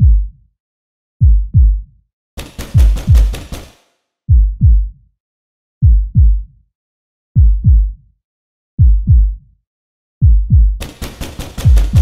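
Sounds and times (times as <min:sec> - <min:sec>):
deep heartbeat-like thumps: 0:00.0 - 0:00.3, 0:01.2 - 0:01.9, 0:02.6 - 0:03.6, 0:04.3 - 0:05.0, 0:05.8 - 0:06.5, 0:07.4 - 0:08.0, 0:08.8 - 0:09.4, 0:10.2 - 0:10.8, 0:11.6 - 0:12.0.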